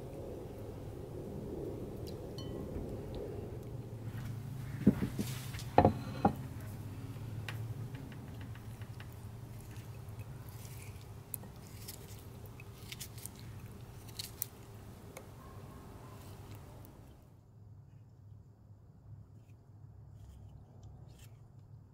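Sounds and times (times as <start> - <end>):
knocks: 4.8 - 6.4.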